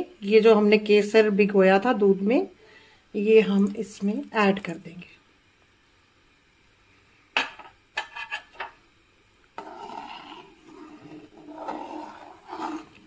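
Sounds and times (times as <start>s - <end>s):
ladle scraping and stirring: 9.6s - 13.0s.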